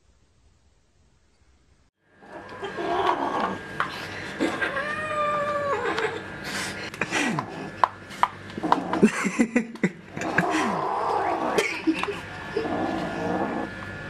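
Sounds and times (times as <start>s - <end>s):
cat meowing: 4.6s - 6.0s.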